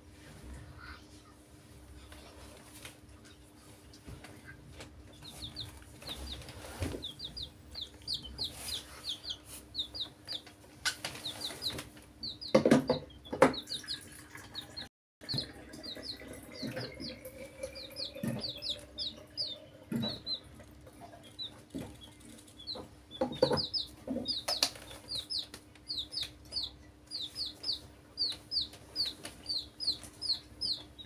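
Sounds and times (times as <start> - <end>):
baby chicks peeping: 2.0 - 31.0
loud knocks: 12.5 - 13.6.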